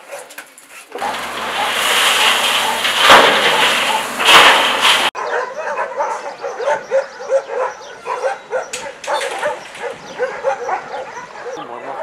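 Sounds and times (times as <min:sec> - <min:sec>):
dump truck pouring soil: 0:00.9 - 0:05.2
many dogs barking: 0:01.0 - 0:04.3, 0:05.1 - 0:12.0
truck engine humming: 0:01.0 - 0:05.2.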